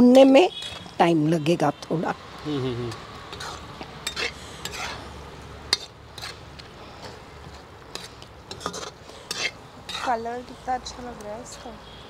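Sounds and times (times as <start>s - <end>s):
spoon scraping a pan: 2.9s - 5.1s, 5.7s - 6.4s, 7.0s - 10.6s.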